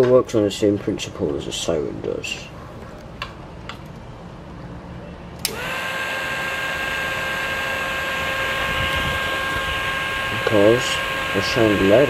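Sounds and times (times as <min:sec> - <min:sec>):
motor whirring: 0:05.4 - 0:12.0.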